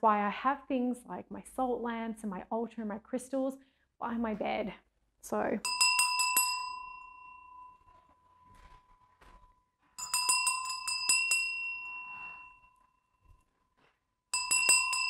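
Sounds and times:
hand bell ringing: 5.6s - 7.9s, 10.0s - 12.9s, 14.3s - 15.0s.

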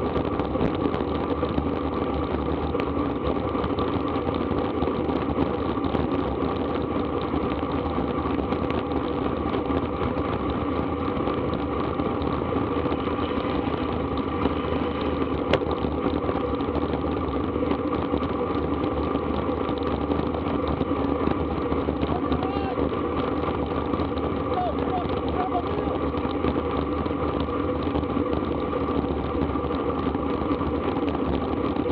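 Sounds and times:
tyres humming on asphalt: 0.0s - 31.9s
wind rushing on microphone: 0.0s - 31.9s.

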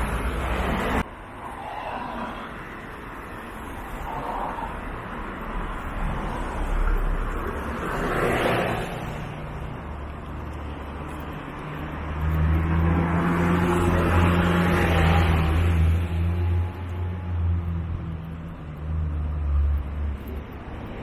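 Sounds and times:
minibus engine hum: 0.0s - 1.1s
car passing with tyre noise: 0.0s - 21.0s.

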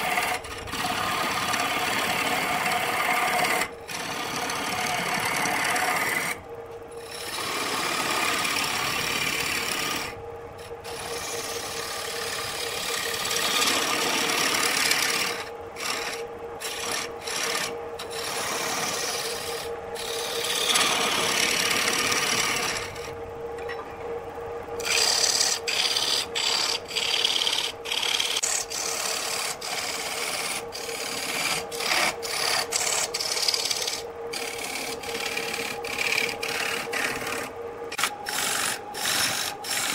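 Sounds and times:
lathe gouge scraping wood: 0.0s - 6.4s, 7.0s - 23.2s, 24.8s - 39.9s
lathe motor hum: 0.0s - 39.9s.

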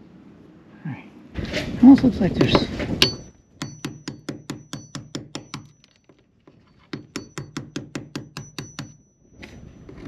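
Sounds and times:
hammer tapping chisel: 3.0s - 6.0s, 6.8s - 9.1s
faint high ringing tone: 8.3s - 10.0s.

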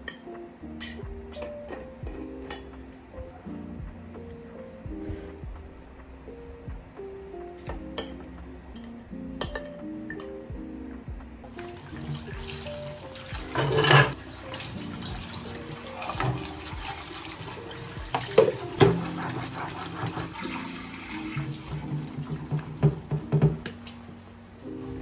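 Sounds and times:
soft background music: 0.0s - 25.0s
tap water running into sink: 11.5s - 24.0s
dishes washed by hand: 11.5s - 25.0s.

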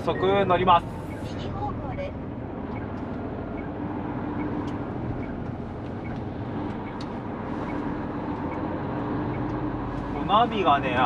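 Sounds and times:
truck engine and road noise: 0.0s - 11.0s.

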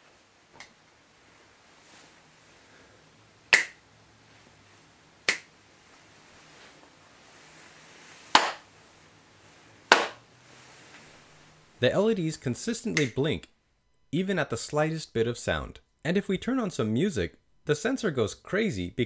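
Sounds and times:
finger snaps: 3.5s - 3.8s, 5.3s - 5.5s
hand claps: 3.5s - 3.8s, 5.3s - 5.5s, 8.4s - 8.6s, 9.9s - 10.2s.

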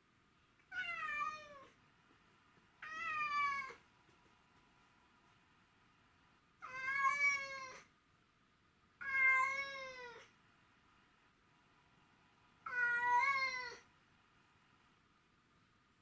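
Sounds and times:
cat meowing: 0.7s - 1.7s, 2.8s - 3.8s, 6.6s - 7.9s, 9.0s - 10.3s, 12.6s - 13.9s.

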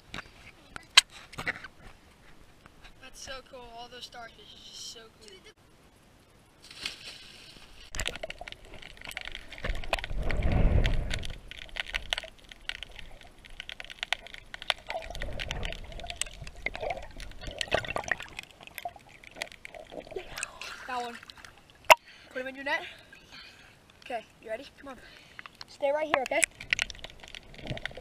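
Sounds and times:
rumbling surges of water: 6.6s - 24.5s
underwater clicks and crackles: 7.6s - 22.0s, 23.8s - 24.2s, 25.1s - 28.0s.

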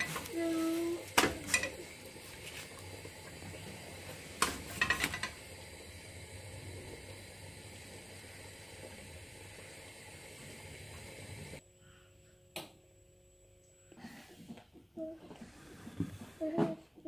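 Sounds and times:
kitchen hiss: 0.0s - 11.6s.

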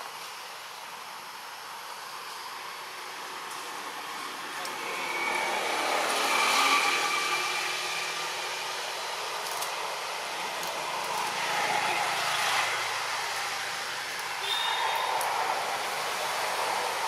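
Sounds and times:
motor vehicle passing by: 4.7s - 8.7s.

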